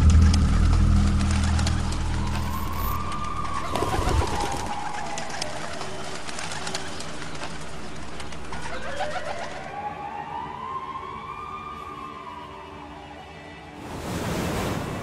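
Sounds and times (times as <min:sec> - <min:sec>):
siren wailing: 0:00.0 - 0:06.2, 0:08.8 - 0:13.6
pigeon wings flapping: 0:00.0 - 0:09.6.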